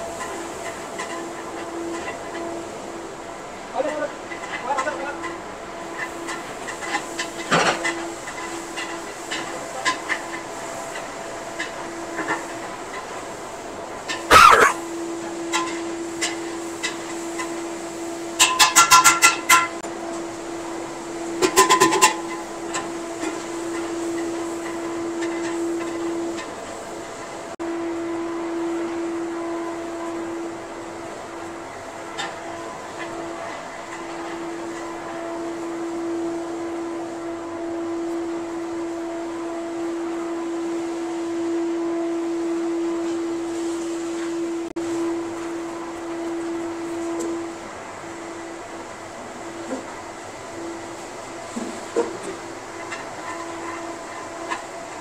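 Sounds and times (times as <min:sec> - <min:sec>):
steady mechanical hum: 0:00.0 - 0:55.0
steady hum: 0:13.5 - 0:16.2.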